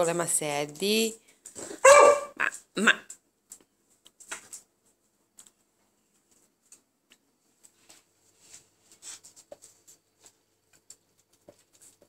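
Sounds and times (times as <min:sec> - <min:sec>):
dog claws clicking on tiles: 0:02.5 - 0:07.8.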